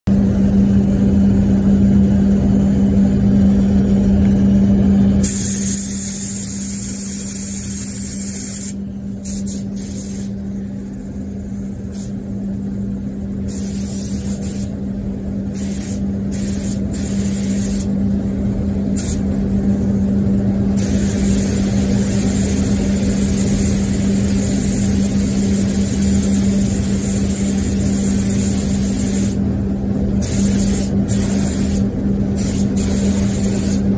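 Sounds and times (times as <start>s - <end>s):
steady low hum: 0.1s - 33.9s
spray gun air hiss: 5.2s - 12.3s, 13.4s - 14.8s, 15.5s - 17.9s, 19.0s - 19.3s, 20.7s - 29.4s, 30.2s - 33.9s.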